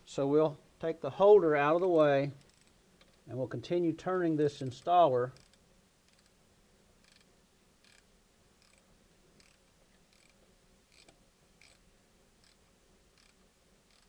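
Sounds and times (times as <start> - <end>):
faint tool clicks: 4.6 - 6.4, 7.0 - 8.8, 9.4 - 11.8, 13.2 - 14.0.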